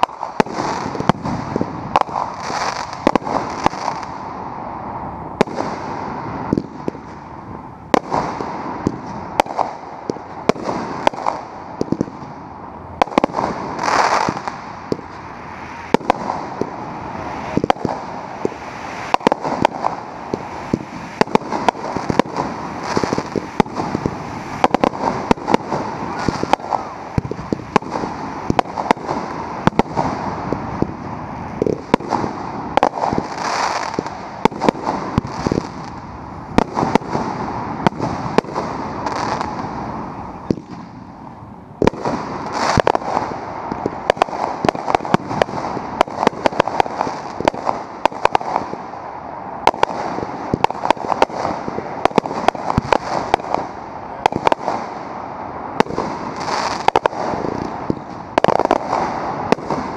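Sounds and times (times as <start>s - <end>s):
steady firework hiss: 0.0s - 59.9s
fireworks launch thumps and bursts: 5.4s - 7.2s, 7.9s - 12.3s, 13.0s - 16.8s, 17.4s - 31.0s, 31.6s - 36.0s, 40.4s - 41.0s, 41.8s - 48.8s, 49.6s - 54.9s, 55.8s - 59.9s.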